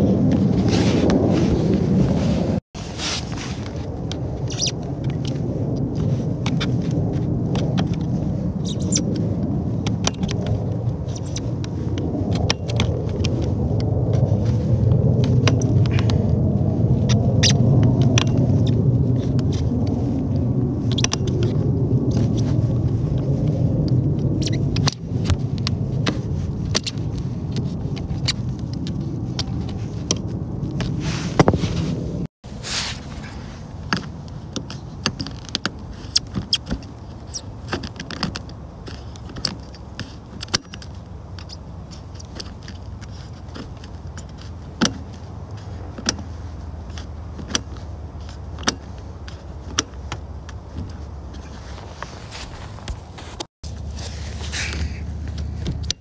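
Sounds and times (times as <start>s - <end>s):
low rumble: 0.0s - 36.1s.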